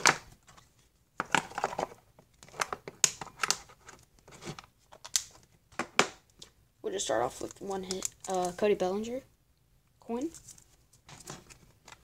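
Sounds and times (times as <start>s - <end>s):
plastic rustling and clicking: 0.0s - 6.5s, 7.4s - 8.6s.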